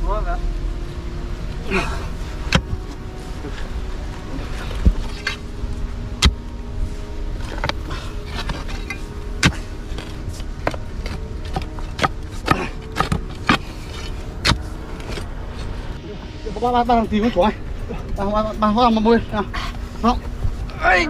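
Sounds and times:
spade chopping into stony soil: 9.4s - 9.6s.

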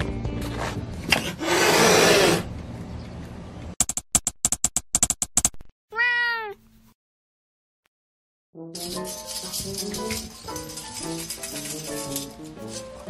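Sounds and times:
cat hissing: 1.3s - 2.5s.

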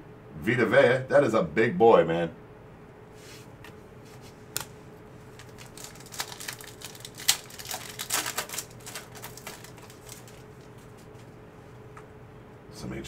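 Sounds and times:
foil wrappers crinkling and tearing: 4.6s - 11.3s.

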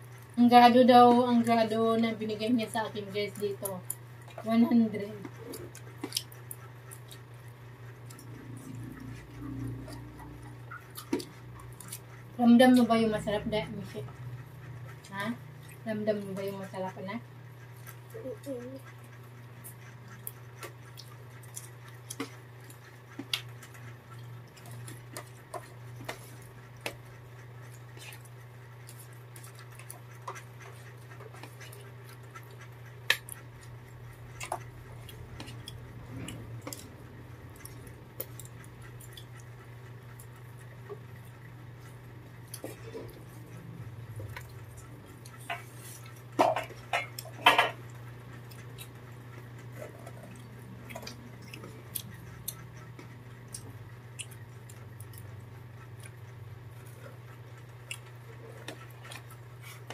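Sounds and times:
steady low hum: 0.0s - 59.9s.

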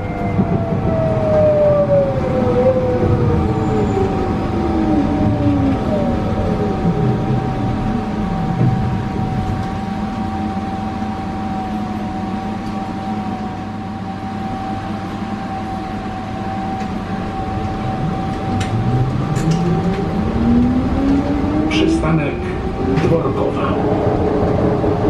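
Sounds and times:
tram drive whine: 0.0s - 25.0s
low motor tones: 15.5s - 25.0s
wheels rumbling: 16.0s - 25.0s.

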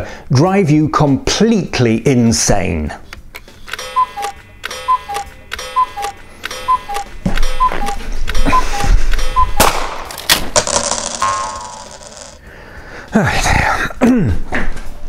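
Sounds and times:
clock clicks: 3.7s - 9.6s
cuckoo clock calling: 3.8s - 9.6s.

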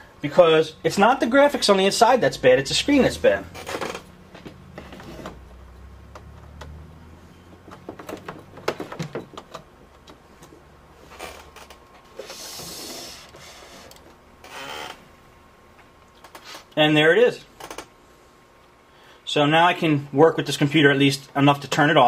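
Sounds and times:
cable clicking and knocking: 7.6s - 10.6s.

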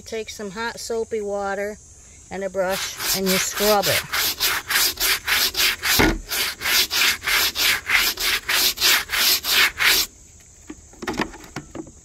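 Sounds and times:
brush scrubbing wet wooden boards: 2.7s - 10.1s.

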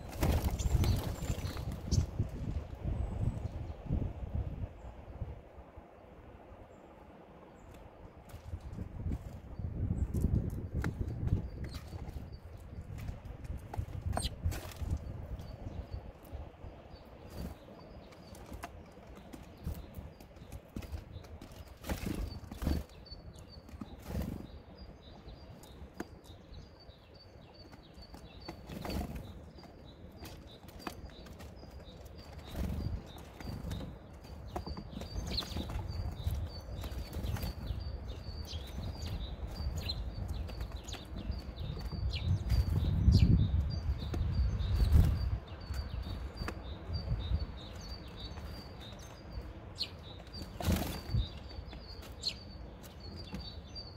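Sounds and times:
bird wing flutters: 0.0s - 2.1s.

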